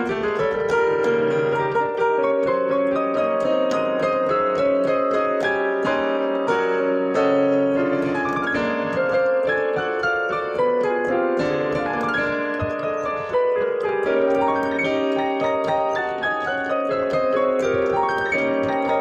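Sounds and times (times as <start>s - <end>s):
digital piano piece: 0.0s - 19.0s.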